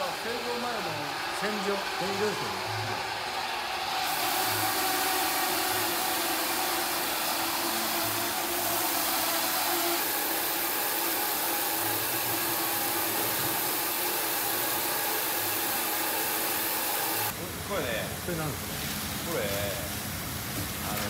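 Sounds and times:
machinery running: 0.0 - 17.3.

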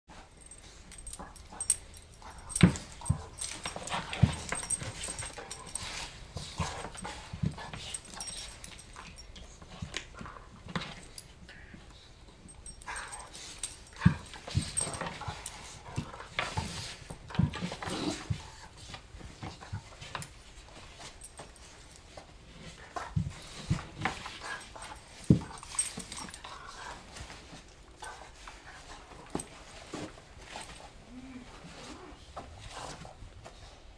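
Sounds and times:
dogs scuffling: 0.3 - 11.2, 12.5 - 33.8.

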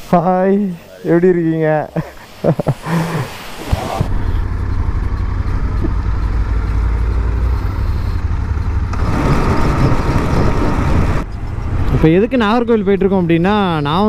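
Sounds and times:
motorcycle engines rumbling: 0.0 - 14.0
wind and road noise: 0.0 - 14.0.

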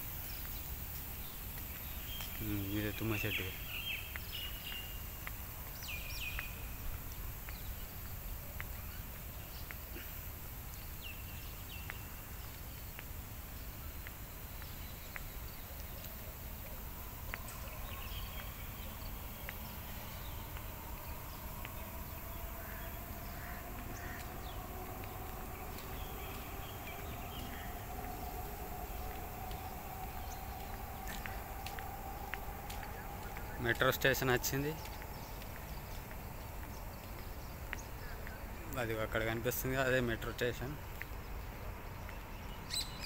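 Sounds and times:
steady low rumble: 0.0 - 43.0
faint hum rising in pitch: 10.5 - 43.0
bird chirps: 14.5 - 41.5.

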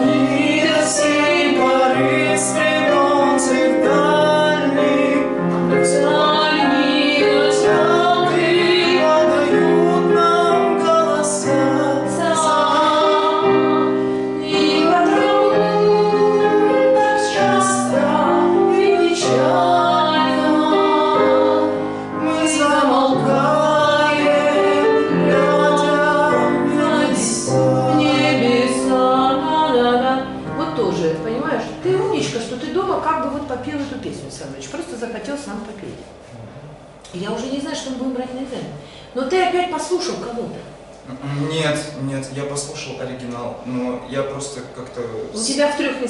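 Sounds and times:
instrumental accompaniment: 0.0 - 34.4.

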